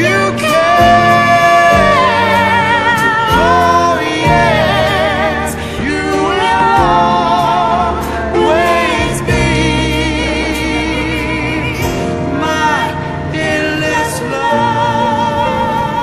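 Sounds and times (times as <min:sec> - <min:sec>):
song with vibrato singing: 0:00.0 - 0:16.0.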